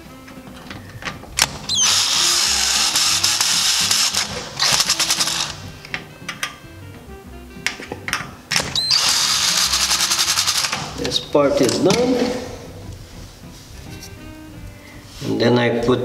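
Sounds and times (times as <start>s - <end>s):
faint background music: 0.0s - 16.0s
cordless screwdriver running: 1.7s - 5.7s, 8.8s - 11.0s.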